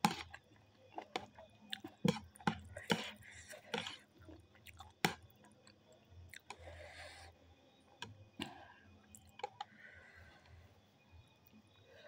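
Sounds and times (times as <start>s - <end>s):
person chewing noodles: 0.0s - 6.8s.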